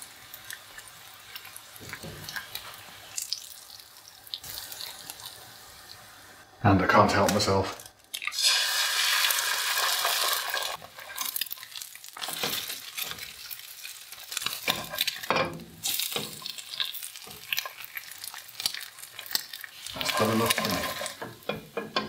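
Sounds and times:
egg sizzling in hot oil: 0.0s - 6.6s, 7.2s - 22.0s
spatula scraping a pan: 10.8s - 11.6s, 14.3s - 15.4s.

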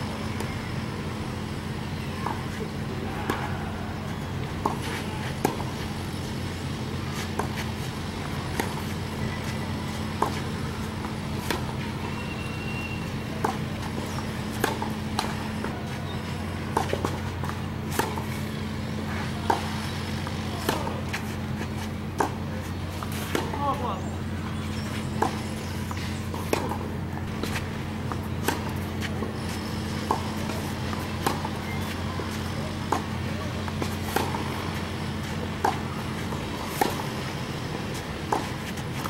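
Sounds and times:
steady low hum: 0.0s - 39.0s
tennis balls struck and bouncing: 0.2s - 39.0s.

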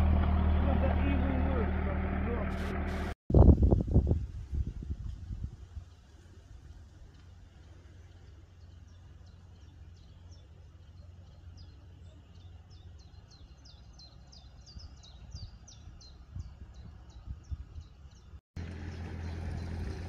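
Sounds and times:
songbird chirping: 7.2s - 20.0s.

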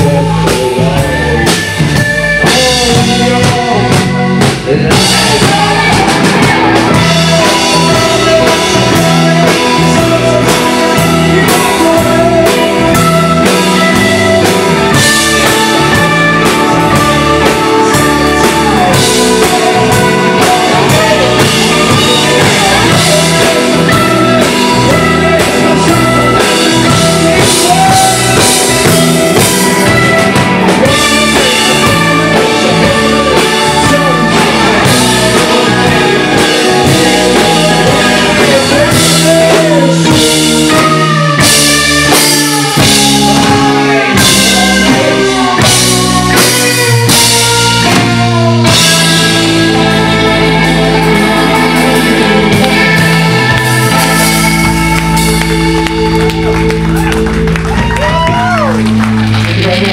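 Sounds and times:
drum kit: 0.0s - 59.9s
guitar: 0.0s - 59.9s
rock band playing live: 0.0s - 59.9s.

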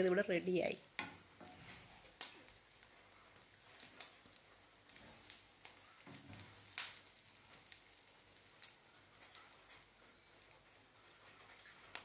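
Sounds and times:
wooden spatula scraping a pan: 1.0s - 2.2s, 11.0s - 12.0s.

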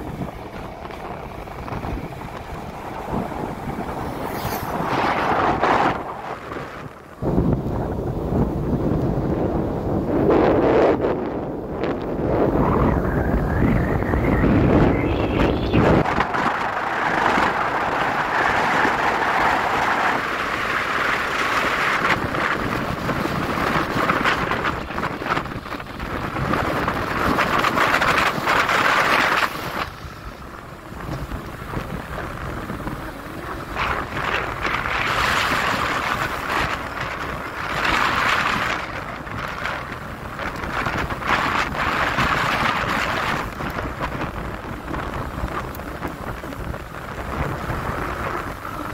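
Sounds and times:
vehicle running noise: 0.0s - 48.9s
wind buffeting microphone: 0.0s - 48.9s.

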